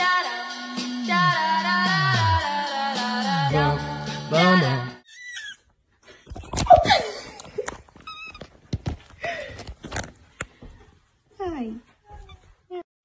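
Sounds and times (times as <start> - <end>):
sung music track: 0.0 - 5.0
cat crying: 5.0 - 5.6
knocks and rubbing on microphone: 6.3 - 10.9.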